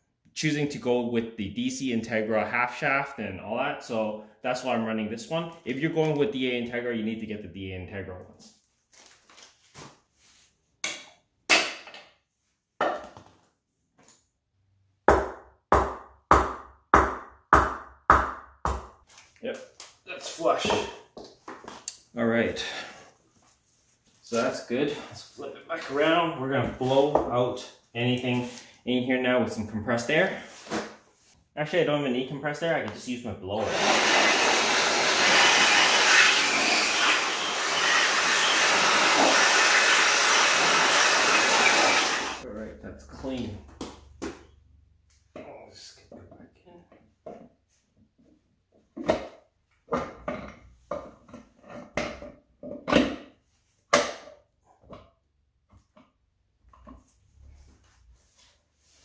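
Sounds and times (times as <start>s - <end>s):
handheld blower running: 33.6s - 42.4s.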